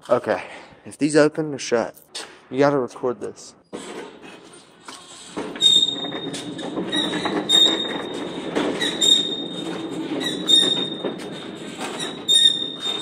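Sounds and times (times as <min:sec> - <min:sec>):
metal hinges squealing: 0:03.8 - 0:13.0.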